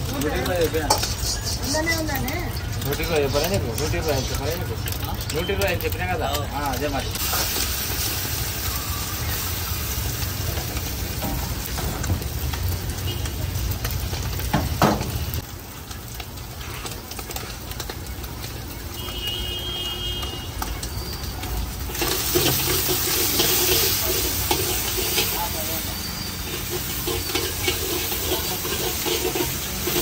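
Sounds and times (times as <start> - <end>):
rice sizzling in a wok: 0.0 - 30.0
steel spatula scraping a wok: 0.3 - 2.6, 21.7 - 30.0.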